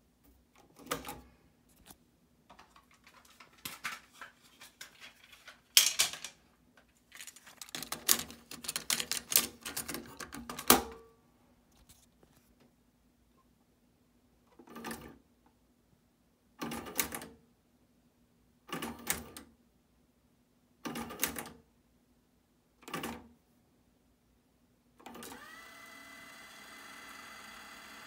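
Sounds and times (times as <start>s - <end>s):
motor whir with high whine: 25.3s - 28.0s.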